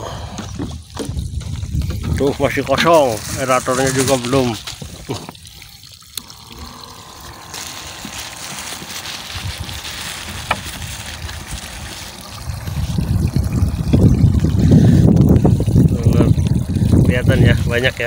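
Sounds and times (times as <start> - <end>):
air bubbling in water: 4.8 - 17.7.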